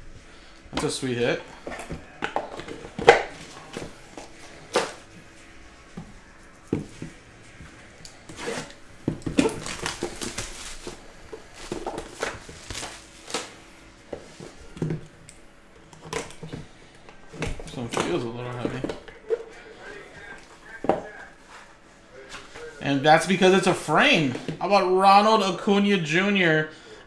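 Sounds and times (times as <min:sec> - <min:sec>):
scraping and rustling: 0:01.5 - 0:14.8.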